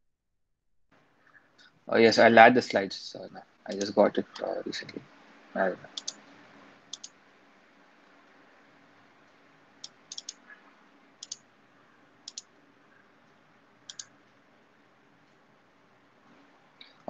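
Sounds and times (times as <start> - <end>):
computer control clicks: 5.9 - 6.2, 6.9 - 7.2, 9.8 - 10.5, 11.2 - 11.4, 12.2 - 12.5, 13.9 - 14.1.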